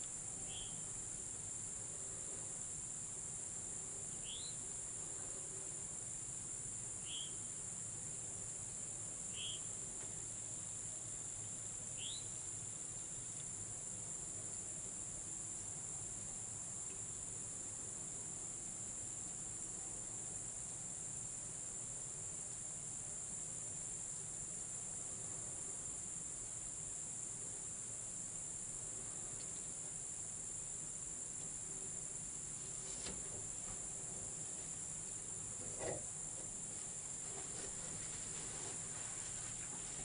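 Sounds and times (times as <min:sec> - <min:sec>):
insects singing: 0:00.1 - 0:01.6, 0:04.0 - 0:04.9, 0:07.0 - 0:07.6, 0:09.3 - 0:09.8, 0:11.9 - 0:13.3.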